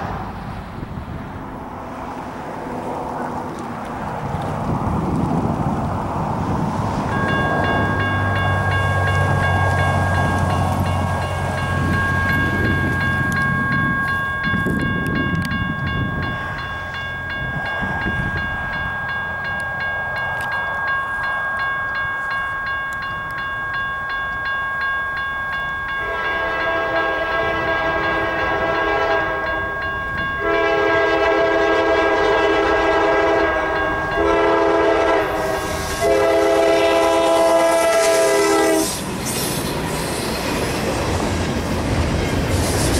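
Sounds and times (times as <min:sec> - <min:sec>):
railroad crossing bell ringing: 0:06.9 - 0:42.9
locomotive horn blasts: 0:26.0 - 0:39.0.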